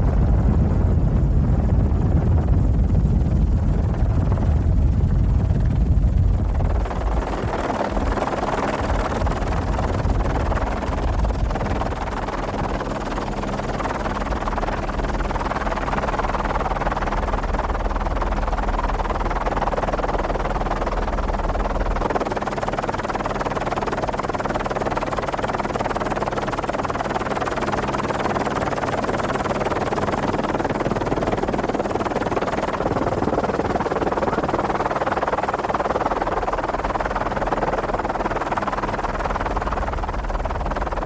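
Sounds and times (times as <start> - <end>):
wind and rough sea rumble: 0.0 - 23.4
helicopter drone: 0.0 - 41.0.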